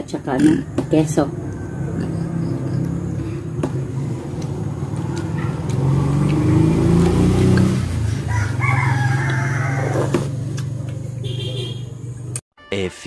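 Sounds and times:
rooster crowing: 8.1s - 10.4s.

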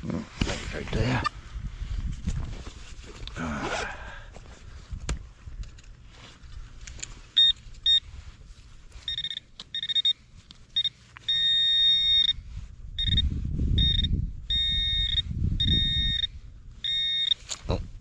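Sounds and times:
metal detector pinpointer beeping: 7.3s - 8.1s, 9.0s - 17.6s.

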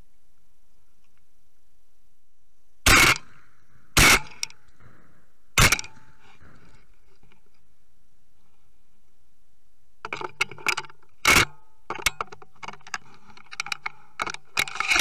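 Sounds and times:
shotgun shots: 2.9s - 3.4s, 4.0s - 5.0s, 5.6s - 6.2s.

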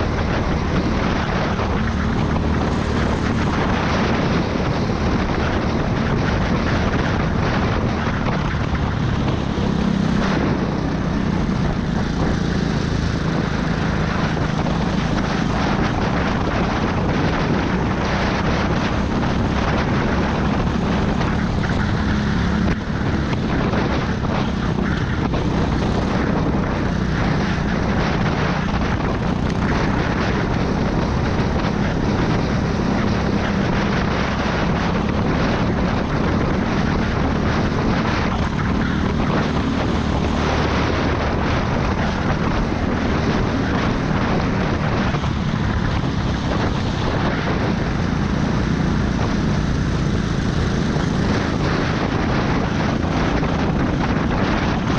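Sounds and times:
go-kart engine drone: 0.0s - 54.9s
rushing air noise: 0.0s - 54.9s.

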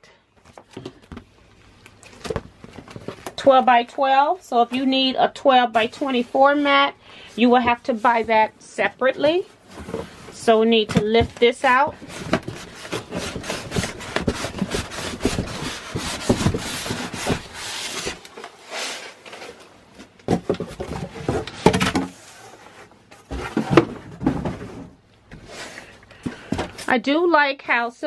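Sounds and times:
scrapes and knocks: 9.6s - 25.5s
styrofoam rubbing against cardboard: 12.6s - 19.2s.

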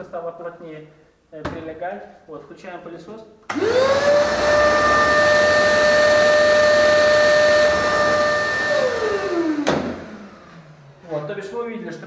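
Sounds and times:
dust extractor motor whine: 3.5s - 11.0s.

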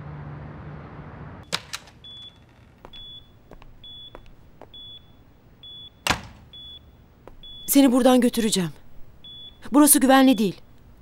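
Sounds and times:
patient monitor beeping: 2.0s - 8.5s, 9.1s - 10.6s.

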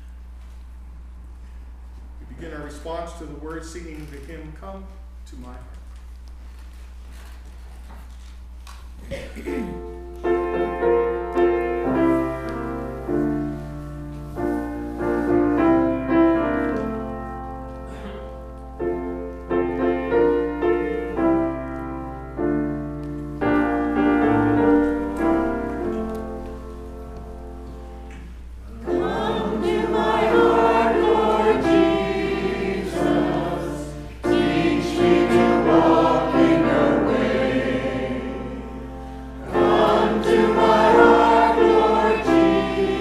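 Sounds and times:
grand piano playing hymn chords: 9.5s - 43.0s.

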